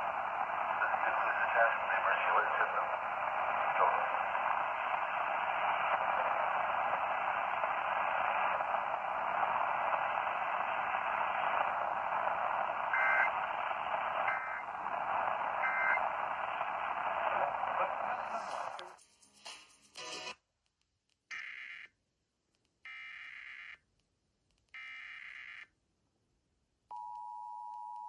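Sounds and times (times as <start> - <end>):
radio static hiss: 0.0 - 19.0.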